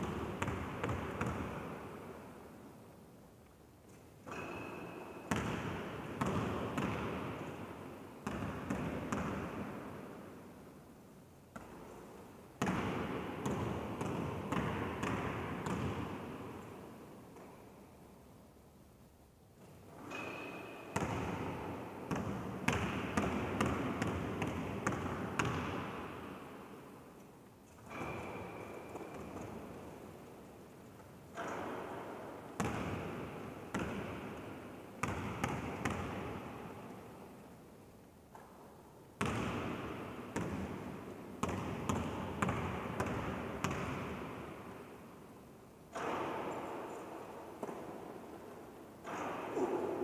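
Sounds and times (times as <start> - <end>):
basketball bouncing on floor: 0.0 - 1.6, 22.1 - 26.0, 35.0 - 36.3, 39.2 - 39.8, 41.4 - 44.0
basketball bouncing in echoing hall: 0.0 - 2.9, 3.9 - 18.1, 19.6 - 50.0.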